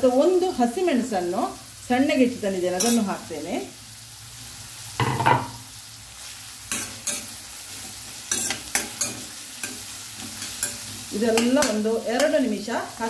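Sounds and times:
food sizzling in oil: 0.0s - 13.0s
spoon scraping pan: 2.8s - 3.1s, 6.7s - 12.5s
spoon clinking against metal: 6.7s - 7.3s, 8.3s - 9.8s.

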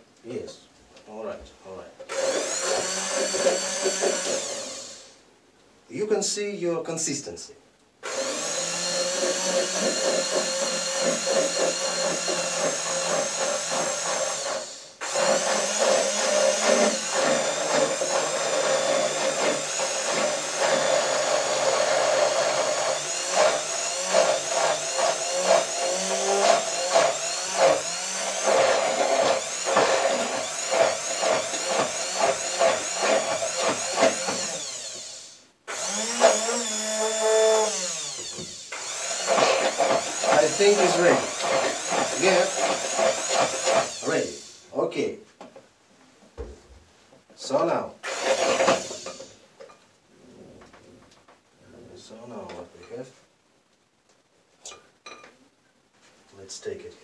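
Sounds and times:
immersion blender motor whining: 2.1s - 5.2s, 8.0s - 44.7s, 48.0s - 49.4s.

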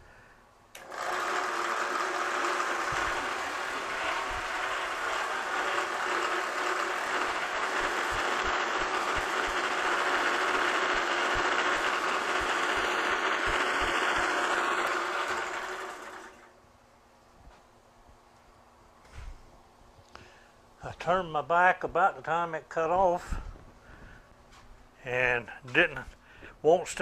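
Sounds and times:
bandsaw cutting steel: 0.8s - 16.5s.

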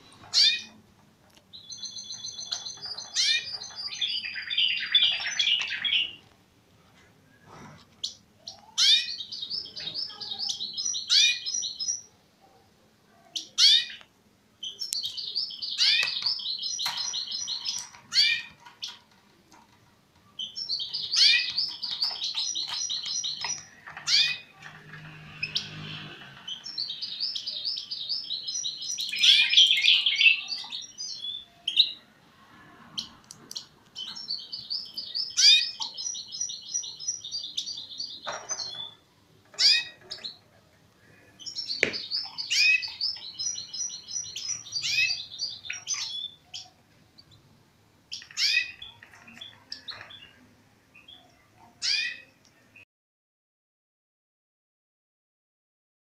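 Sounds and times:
finch twittering song: 1.5s - 6.2s, 8.0s - 12.1s, 14.6s - 19.0s, 20.3s - 24.6s, 25.4s - 32.0s, 33.0s - 39.0s, 41.4s - 47.4s, 48.1s - 50.4s.

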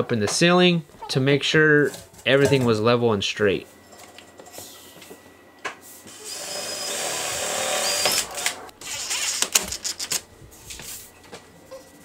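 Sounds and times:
drill motor whirring: 6.1s - 9.4s.

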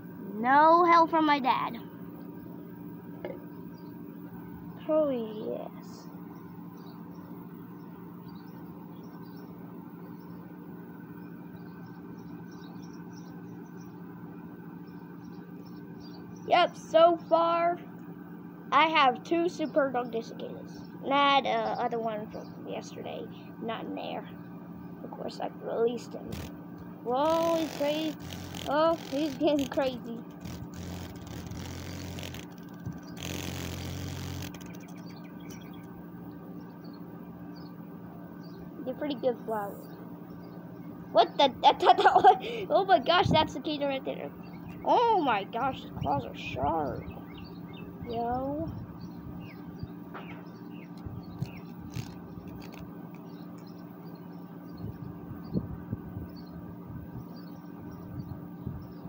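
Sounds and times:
low mechanical hum: 0.0s - 59.0s
cicada pulsing buzz: 26.2s - 36.0s, 50.6s - 55.6s.

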